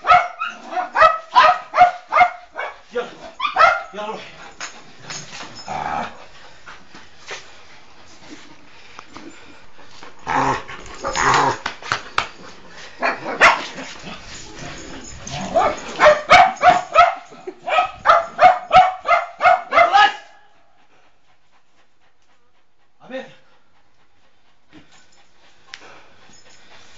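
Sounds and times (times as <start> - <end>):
dog barking: 0.0 - 2.8, 3.4 - 4.0, 13.0 - 13.7, 15.5 - 20.4
dog scuffling with toy: 4.4 - 8.4.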